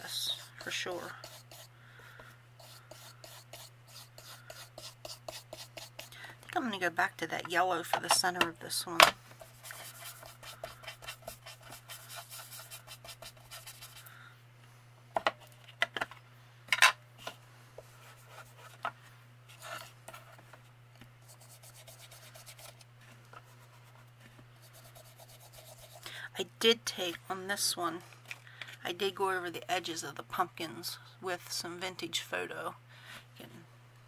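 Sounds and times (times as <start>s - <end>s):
foam dauber rubbing on paper: 0.0s - 1.7s, 2.6s - 6.1s, 9.4s - 14.1s, 21.3s - 22.8s, 24.6s - 26.0s.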